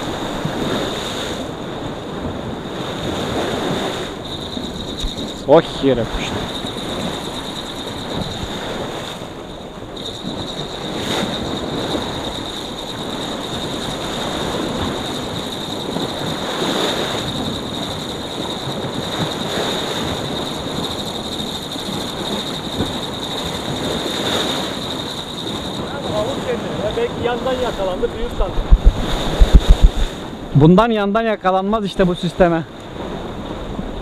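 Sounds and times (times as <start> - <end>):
sea waves breaking on rocks: 0.0 - 30.5
wind on microphone: 0.0 - 30.6
thin steady high tone: 4.0 - 28.4.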